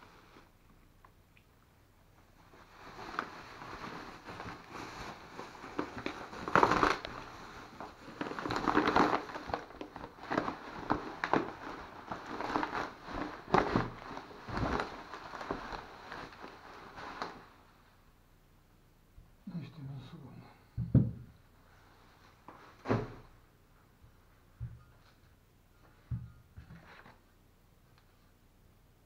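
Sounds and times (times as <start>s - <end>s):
bubble wrap and plastic crinkling: 2.2s - 17.8s.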